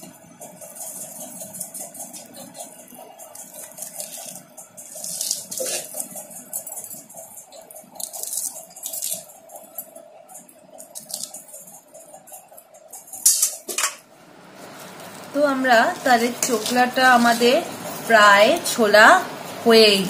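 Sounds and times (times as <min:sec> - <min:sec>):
steady background hum: 0:00.0 - 0:20.0
fruit skin tearing and rustling: 0:00.4 - 0:10.0, 0:10.7 - 0:12.2.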